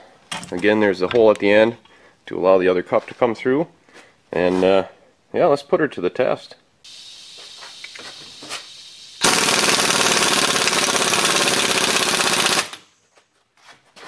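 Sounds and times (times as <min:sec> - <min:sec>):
faint steady hiss: 0:01.3 - 0:09.2
impact wrench hammering: 0:09.2 - 0:12.8.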